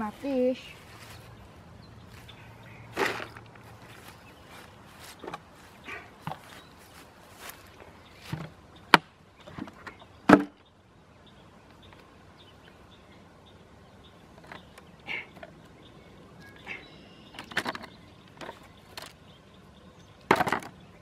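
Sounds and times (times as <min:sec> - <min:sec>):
soft rustling: 0:00.0 - 0:08.4.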